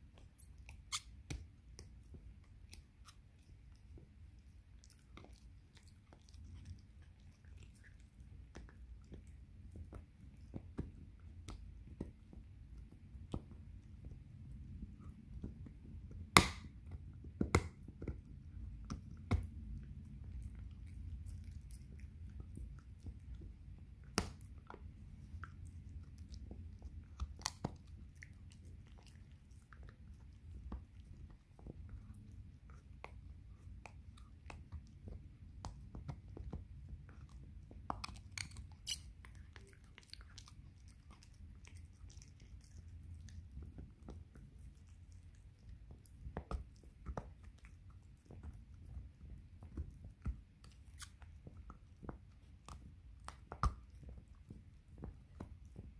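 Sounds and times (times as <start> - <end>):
dog gnawing a hard chew: 35.8 - 55.9.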